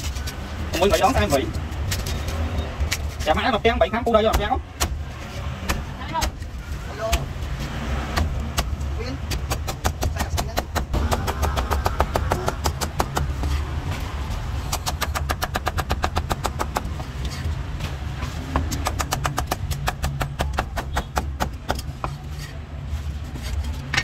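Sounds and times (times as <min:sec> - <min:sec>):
cleaver chopping on wooden block: 0:08.1 - 0:13.6, 0:14.7 - 0:17.2, 0:18.5 - 0:22.2.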